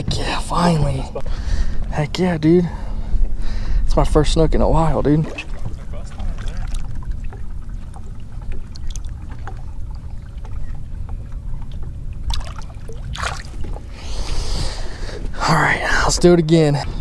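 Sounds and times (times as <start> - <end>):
steady low rumble: 0.0 - 17.0
water lapping against boat: 5.0 - 15.4.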